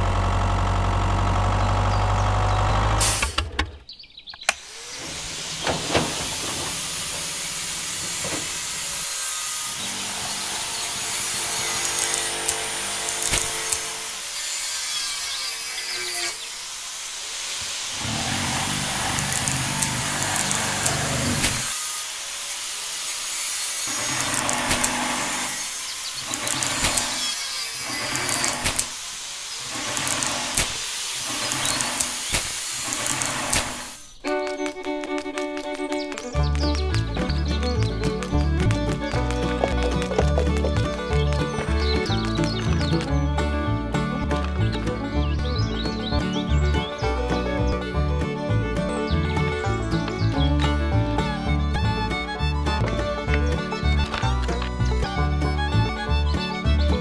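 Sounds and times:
small motor grinding: 0:00.0 - 0:03.5, 0:04.4 - 0:46.0.

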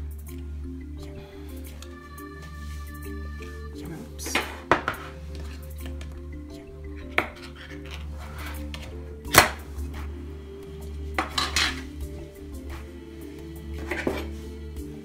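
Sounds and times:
quiet background music: 0:00.0 - 0:15.0
metal tin clanking and scraping: 0:07.0 - 0:09.6, 0:11.2 - 0:12.0.

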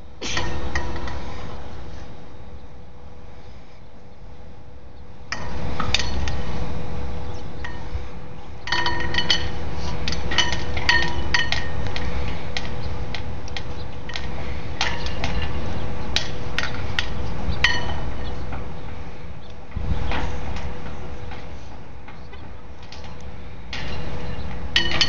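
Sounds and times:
metal clinks on flagpole: 0:08.7 - 0:11.8, 0:24.8 - 0:25.0.

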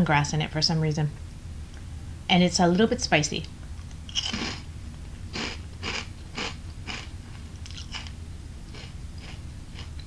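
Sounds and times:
crunchy chewing of crackers: 0:04.1 - 0:04.7, 0:05.3 - 0:10.0.

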